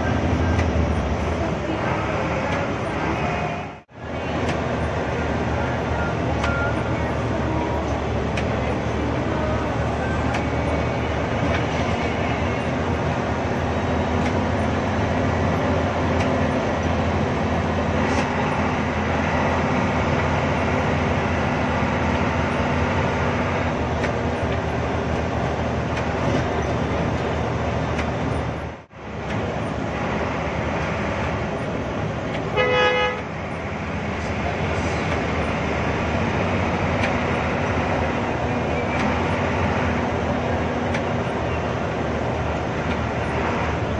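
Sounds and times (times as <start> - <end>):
bus diesel engine running: 0.0 - 43.9
horn toot: 32.5 - 33.3.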